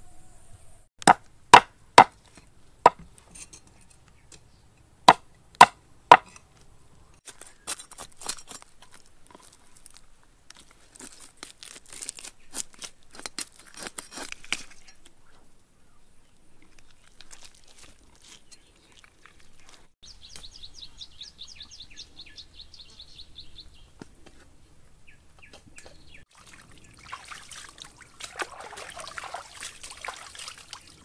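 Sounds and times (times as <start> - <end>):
cleaver chopping on wooden board: 1.0 - 2.2, 2.9 - 3.1, 5.1 - 6.4
blade tapping and scraping: 1.0 - 4.5, 5.1 - 6.7.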